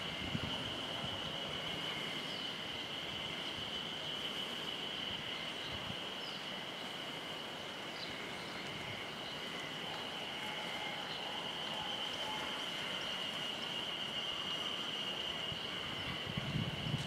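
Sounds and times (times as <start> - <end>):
high-pitched drone: 9.6 - 16.8.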